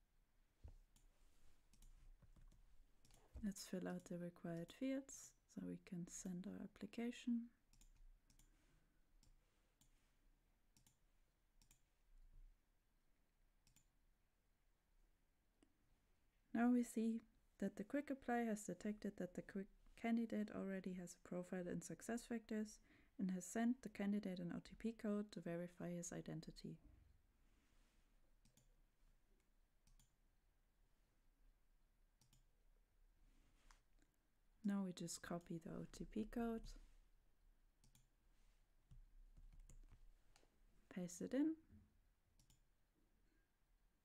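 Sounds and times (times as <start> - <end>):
computer mouse clicks: 1.7 - 3.4, 7.7 - 8.5, 10.8 - 11.0, 11.6 - 11.8, 13.6 - 13.9, 28.4 - 28.7, 29.8 - 30.1, 32.2 - 32.5, 37.8 - 38.1, 42.4 - 42.6
faint computer mouse clicks: 13.6 - 13.9.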